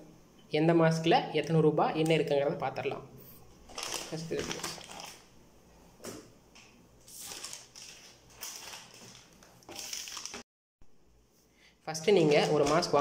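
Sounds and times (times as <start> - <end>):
plastic packets crinkling: 3.6 - 5.3, 7.0 - 10.4, 12.0 - 13.0.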